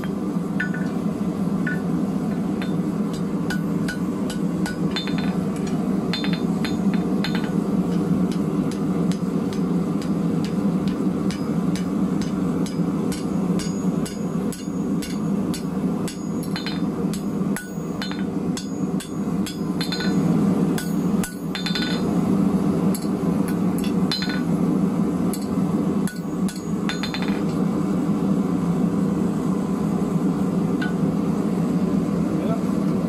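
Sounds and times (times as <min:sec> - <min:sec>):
hammer striking hot steel on anvil: 0:00.0 - 0:01.0, 0:01.6 - 0:22.2, 0:22.9 - 0:24.6, 0:25.3 - 0:27.6, 0:30.8 - 0:31.1.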